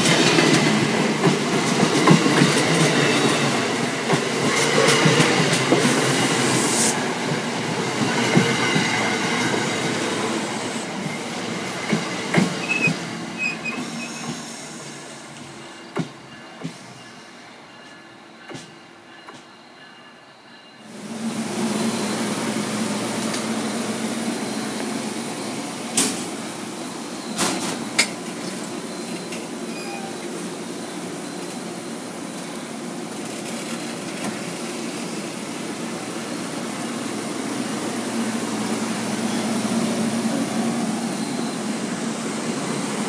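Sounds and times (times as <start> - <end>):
train starting to move: 0.0 - 43.0.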